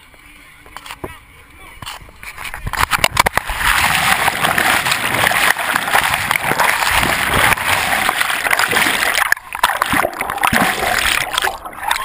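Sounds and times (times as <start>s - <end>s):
water churning underwater: 2.6s - 12.0s
sharp splashes: 2.9s - 12.0s.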